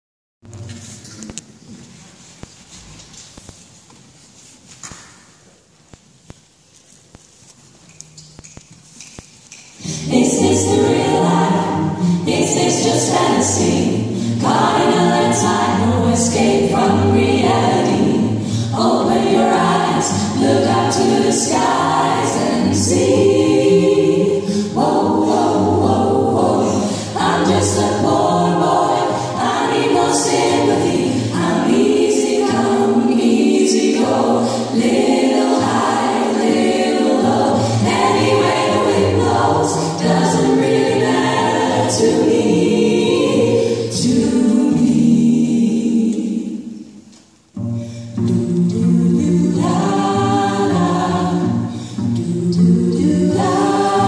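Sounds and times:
female choir singing a cappella: 9.8 - 47.1, 48.1 - 54.0.

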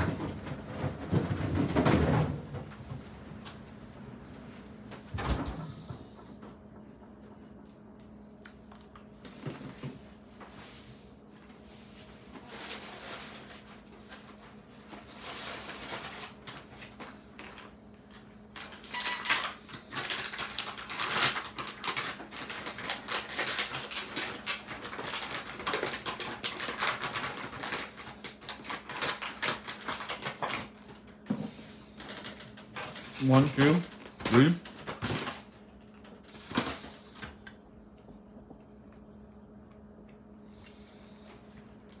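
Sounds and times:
steady low hum: 0.0 - 18.9, 27.6 - 42.0
paper bag crinkling: 11.9 - 37.3
pretzels clicking and rattling: 18.6 - 30.7.

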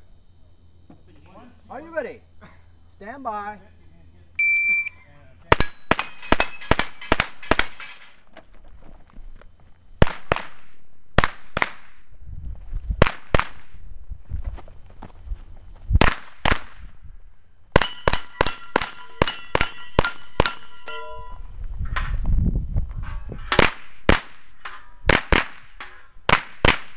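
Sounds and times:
carbine gunshots: 5.5 - 8.1, 23.5 - 26.9
steel plates ringing: 5.6 - 8.1, 17.8 - 21.5.

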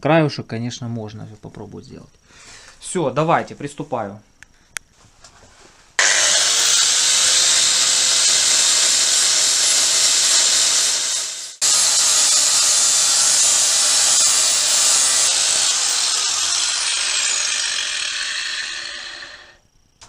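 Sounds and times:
angle grinder cutting steel: 6.0 - 19.6.

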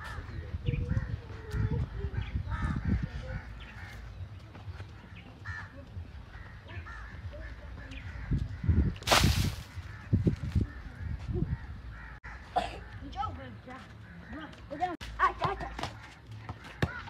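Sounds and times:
crows cawing: 5.0 - 13.3, 14.0 - 17.0.

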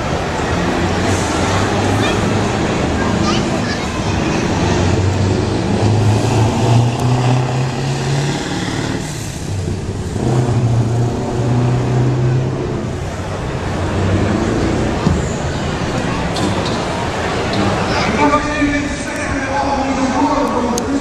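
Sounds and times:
truck diesel engine under load: 0.0 - 21.0.

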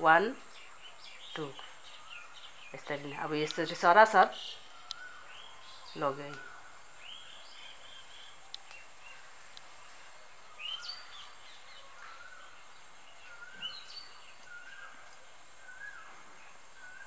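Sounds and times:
birds chirping: 0.0 - 17.0
steady high-pitched hiss: 0.0 - 17.0
faint clicks: 4.6 - 5.1, 8.5 - 9.8, 14.3 - 15.3.

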